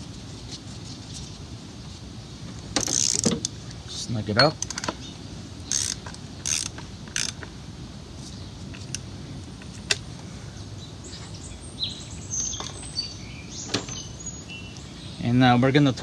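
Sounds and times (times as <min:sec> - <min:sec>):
ratchet clicking and creaking: 0:02.8 - 0:03.6, 0:04.4 - 0:05.0, 0:05.6 - 0:07.5.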